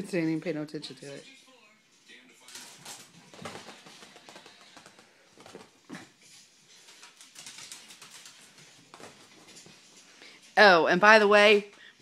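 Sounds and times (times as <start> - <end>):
paws scampering on hardwood floor: 2.5 - 10.0.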